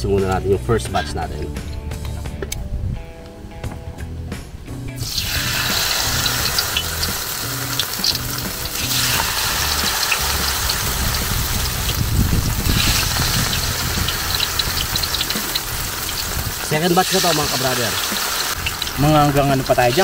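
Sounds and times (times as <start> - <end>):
leaves deep-frying in oil: 5.0 - 20.0.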